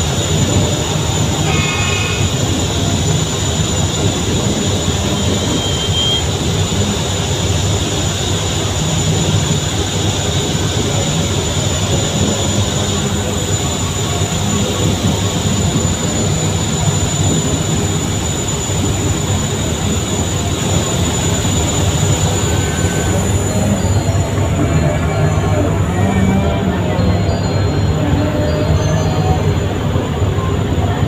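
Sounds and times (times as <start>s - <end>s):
boat engine rumble: 0.0s - 31.0s.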